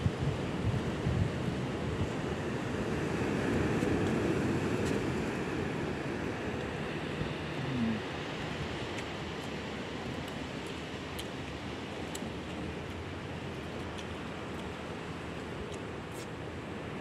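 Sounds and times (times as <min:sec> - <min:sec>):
wind on microphone: 0:00.0 - 0:06.5
sea surf rushing: 0:01.7 - 0:10.1.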